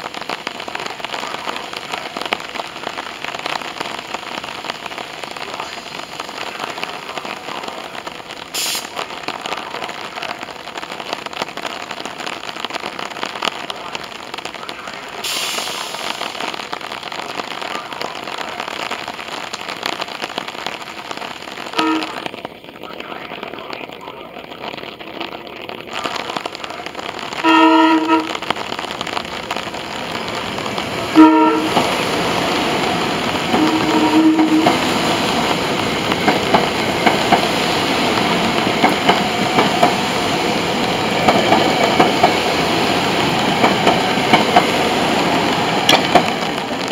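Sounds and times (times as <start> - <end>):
heavy rain hissing: 0.0 - 46.9
train horn toot: 21.7 - 22.3, 27.4 - 28.4, 31.1 - 31.8, 33.5 - 34.8
electric train approaching: 27.2 - 46.9.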